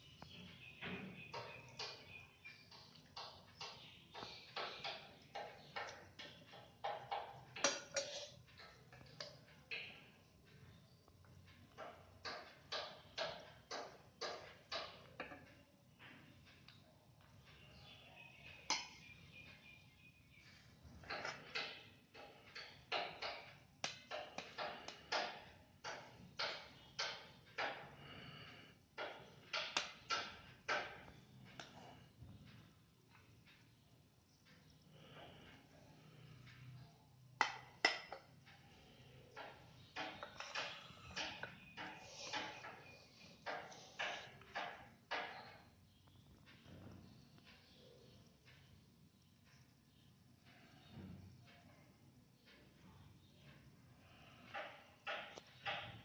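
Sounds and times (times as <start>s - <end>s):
ladle scraping inside pot: 7.6s - 8.4s.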